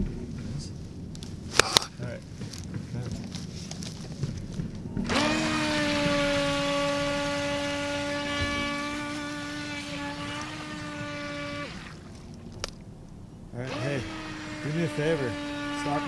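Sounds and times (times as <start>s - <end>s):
electric boat motor whining: 4.8s - 12.6s, 13.6s - 16.0s.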